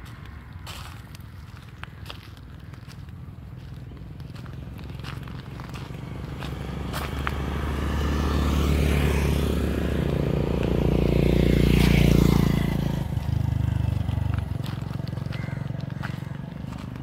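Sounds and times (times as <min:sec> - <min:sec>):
motor scooter passing by: 0:03.3 - 0:17.0
motorcycle engine: 0:03.4 - 0:17.0.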